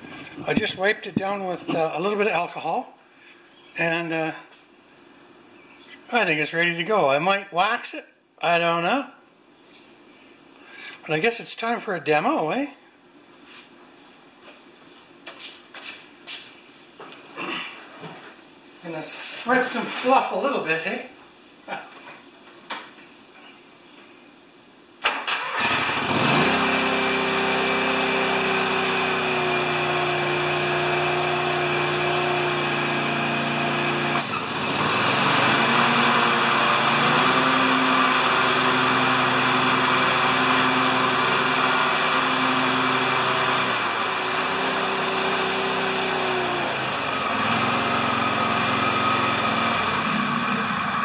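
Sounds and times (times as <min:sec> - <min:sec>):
lawn tractor engine running: 0:25.2 - 0:51.0
mower deck whirring: 0:25.2 - 0:51.0.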